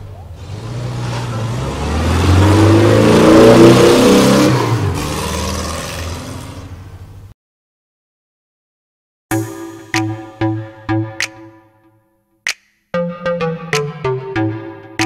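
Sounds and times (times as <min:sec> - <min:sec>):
car engine revving: 0:00.3 - 0:07.0.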